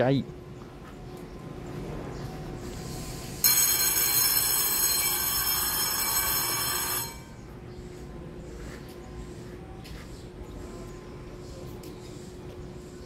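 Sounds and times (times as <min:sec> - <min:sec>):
electric bell ringing: 0:03.4 - 0:07.5.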